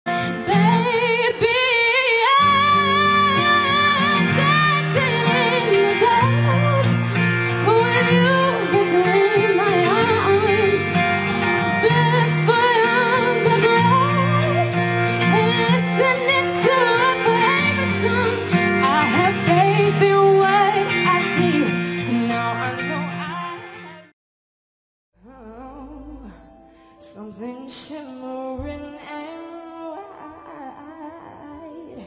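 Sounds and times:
strummed guitar: 0:00.1 - 0:24.1
woman singing: 0:00.1 - 0:24.1, 0:25.2 - 0:32.0.

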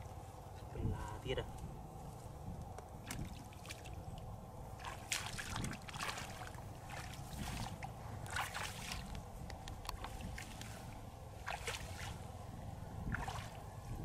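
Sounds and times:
feet splashing through water: 0:03.0 - 0:09.3, 0:10.0 - 0:12.3, 0:13.0 - 0:13.7.

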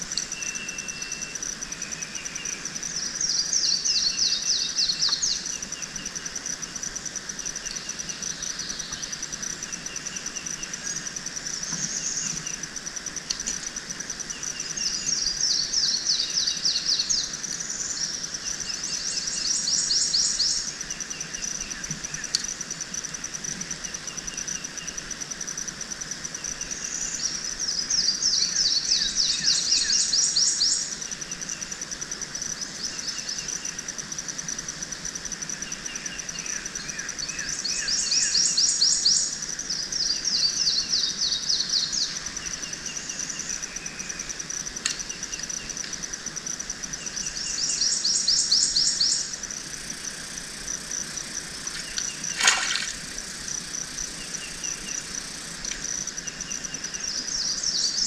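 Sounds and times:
high-pitched insect trill: 0:00.0 - 0:58.0.

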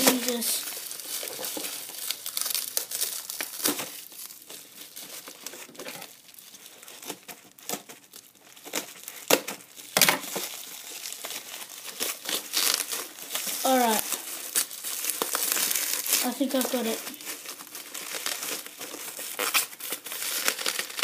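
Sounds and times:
bubble wrap crinkling and crackling: 0:00.0 - 0:21.0.

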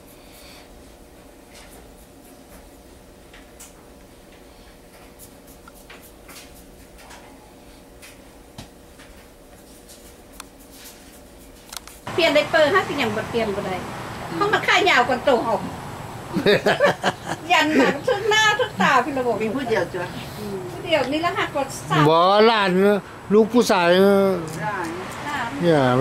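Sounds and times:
faint steady hum: 0:00.0 - 0:24.8
comb scratching through hair: 0:01.6 - 0:02.6, 0:05.1 - 0:07.0, 0:09.6 - 0:12.1.

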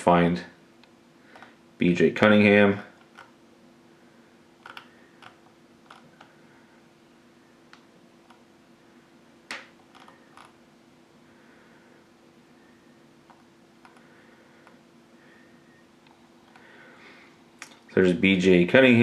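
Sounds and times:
faint steady hum: 0:00.0 - 0:19.0
computer mouse clicks: 0:04.6 - 0:06.3.

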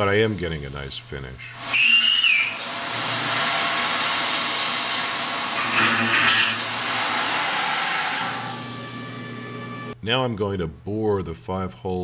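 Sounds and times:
air spray hissing: 0:01.6 - 0:09.0
mill cutting metal: 0:01.8 - 0:10.0.

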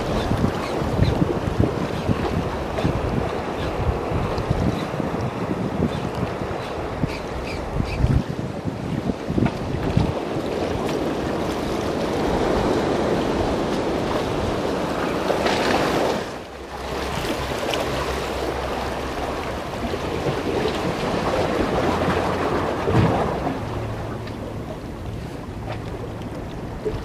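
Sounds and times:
sea surf washing against breakwater: 0:00.0 - 0:27.0
wind buffeting microphone: 0:00.0 - 0:27.0.

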